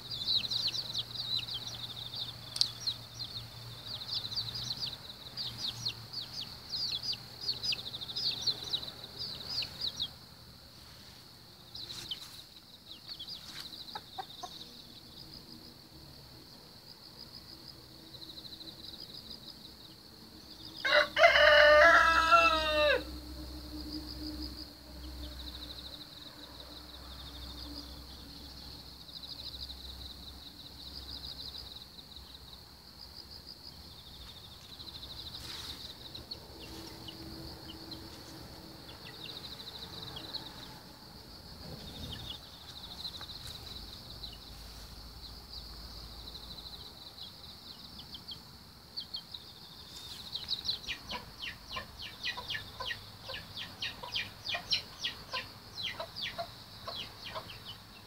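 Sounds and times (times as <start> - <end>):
chicks peeping: 0.0 - 10.2, 11.7 - 14.7, 34.2 - 40.8, 41.6 - 44.7, 49.0 - 58.0
insects chirping: 0.0 - 58.0.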